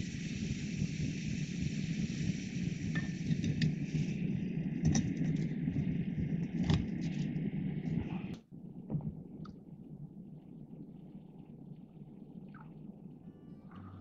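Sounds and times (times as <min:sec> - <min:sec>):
gas stove burner hissing: 0:00.0 - 0:08.4
cup clinking on burner: 0:03.0 - 0:03.7.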